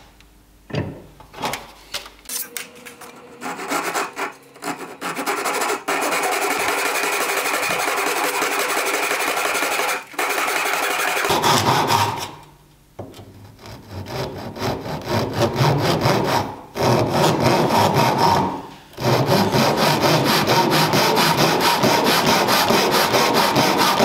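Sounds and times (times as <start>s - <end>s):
saw cutting wooden dowel: 2.3s - 12.5s, 13.4s - 24.0s.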